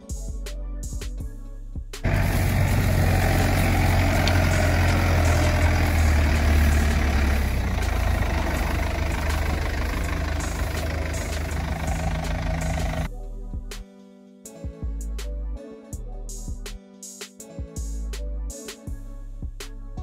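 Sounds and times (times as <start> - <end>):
tractor diesel engine droning: 2.0 - 13.1
slasher cutting grass: 2.1 - 9.5.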